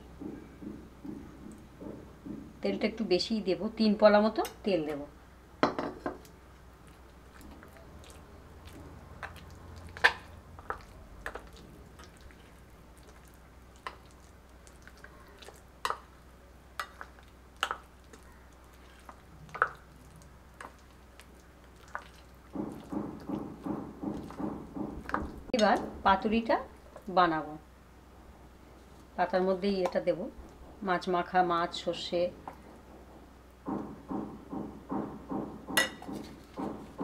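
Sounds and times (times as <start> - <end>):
paste squelching: 6.8 - 16.2, 16.8 - 26.0.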